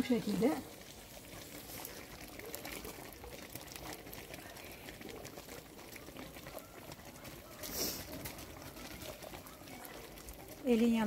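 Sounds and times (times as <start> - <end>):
jam boiling with small pops: 0.0 - 11.0
short hiss: 7.7 - 8.0.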